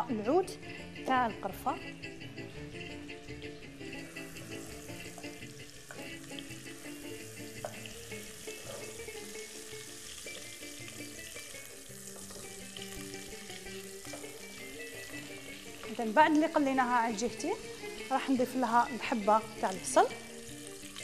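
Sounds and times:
soft background music: 0.0s - 21.0s
chicken sizzling in oil: 2.5s - 21.0s.

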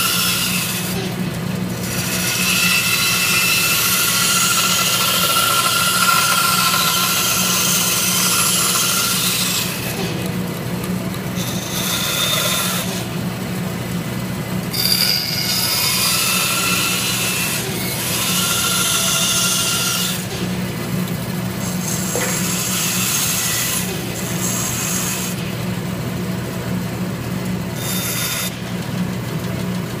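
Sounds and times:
saw blade cutting wood: 0.0s - 10.3s, 11.3s - 13.2s, 14.7s - 20.6s, 21.6s - 25.5s, 27.8s - 28.8s
bandsaw motor hum: 0.0s - 30.0s.

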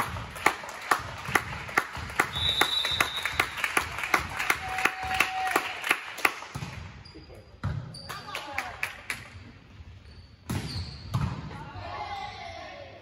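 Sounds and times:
spectators clapping in rhythm: 0.0s - 6.6s, 8.2s - 9.3s
referee's whistle: 2.2s - 3.5s.

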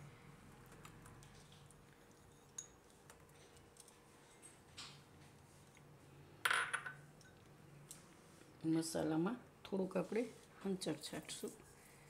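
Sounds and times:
soft brushing sound: 9.8s - 12.0s.

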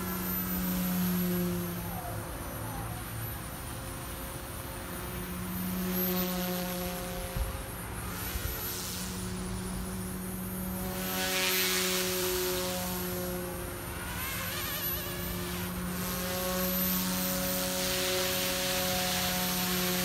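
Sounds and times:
rc helicopter motor and rotor whine: 0.0s - 20.0s.

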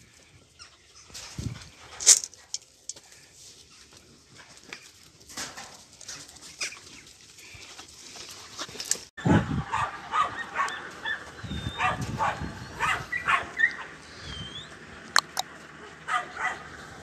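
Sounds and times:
puppies yipping and whining: 9.2s - 14.8s
sharp clicks: 15.1s - 15.5s.

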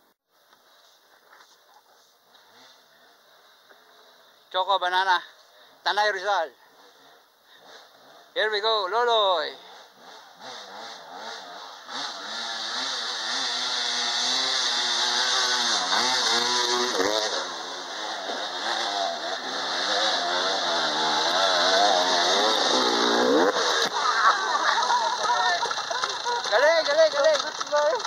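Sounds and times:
dirt bike engine revving: 9.5s - 28.0s.

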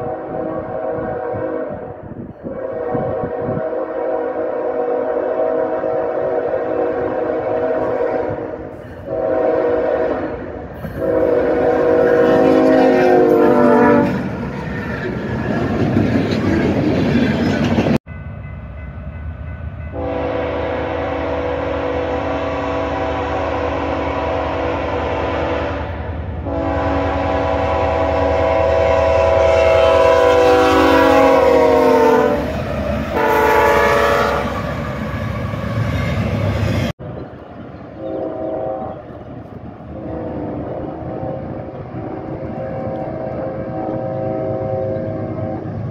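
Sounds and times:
locomotive air horn blasts: 0.0s - 14.3s, 19.9s - 32.5s, 33.1s - 35.6s, 38.0s - 39.2s, 40.0s - 45.9s
train rumbling past: 0.0s - 45.9s.

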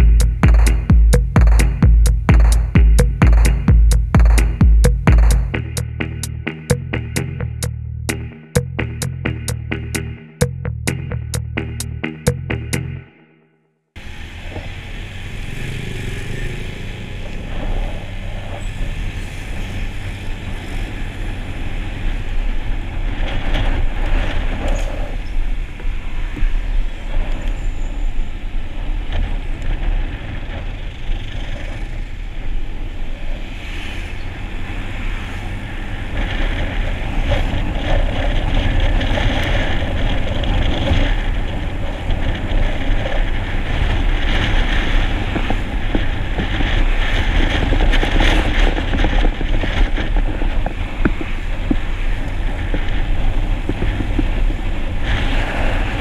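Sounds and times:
wind noise: 0.0s - 13.0s, 14.0s - 56.0s
road rumble: 0.0s - 13.4s, 14.0s - 56.0s
passing traffic: 0.0s - 56.0s
scooter engine: 14.0s - 25.2s.

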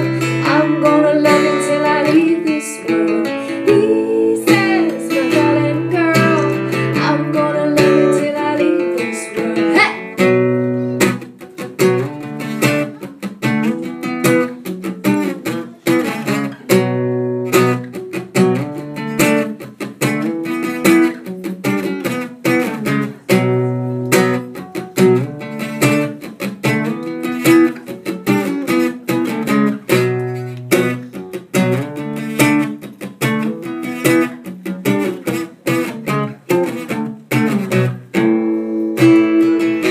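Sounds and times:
woman singing: 0.0s - 11.1s, 38.9s - 39.9s
acoustic guitar strumming: 0.0s - 39.9s.

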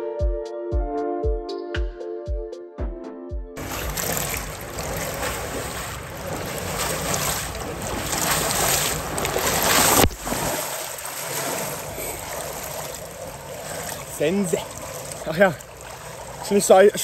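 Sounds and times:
water rushing and splashing: 3.6s - 17.0s.

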